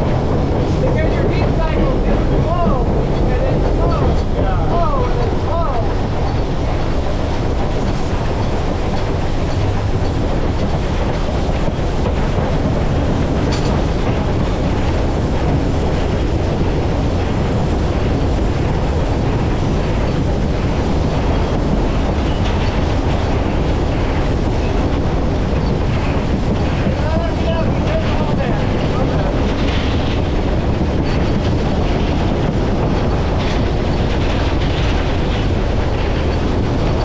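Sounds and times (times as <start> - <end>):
steam locomotive wheels clattering: 0.0 - 37.0.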